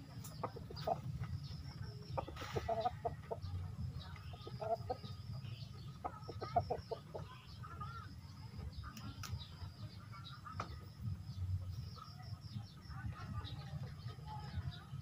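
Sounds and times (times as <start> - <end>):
chicken clucking: 0.0 - 10.9.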